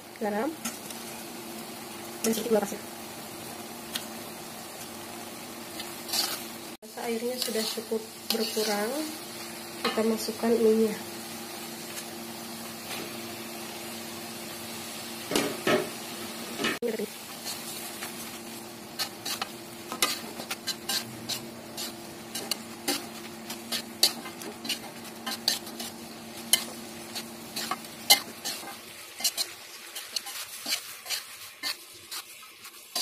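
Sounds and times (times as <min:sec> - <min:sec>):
light frying sizzle: 0:00.0 - 0:33.0
metal spatula scraping a wok: 0:05.8 - 0:06.5, 0:07.2 - 0:09.0, 0:18.9 - 0:33.0.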